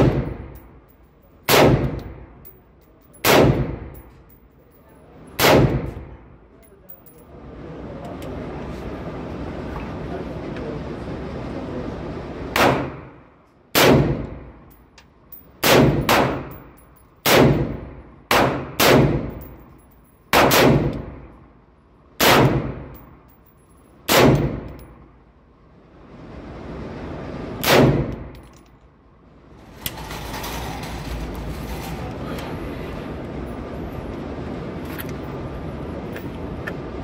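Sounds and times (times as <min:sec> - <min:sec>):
rifle shots echoing indoors: 0:01.4 - 0:02.3, 0:03.2 - 0:03.9, 0:05.4 - 0:06.0, 0:12.6 - 0:14.4, 0:15.6 - 0:16.6, 0:17.2 - 0:19.4, 0:20.3 - 0:21.2, 0:22.2 - 0:23.0, 0:24.1 - 0:24.7.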